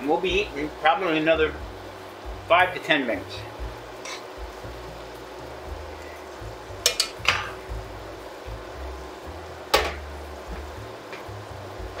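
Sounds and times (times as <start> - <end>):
meat sizzling: 0.0 - 12.0
utensil knocking frying pan: 6.8 - 7.8, 9.7 - 11.3.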